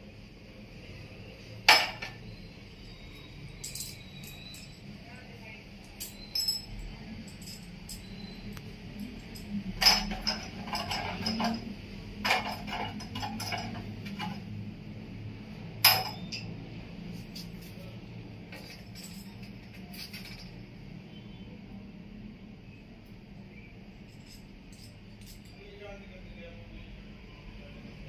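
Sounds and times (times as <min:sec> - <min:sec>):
metallic clinks and knocks: 0:03.2 - 0:04.9, 0:05.8 - 0:14.6, 0:15.8 - 0:16.6, 0:18.5 - 0:20.6, 0:24.0 - 0:25.6.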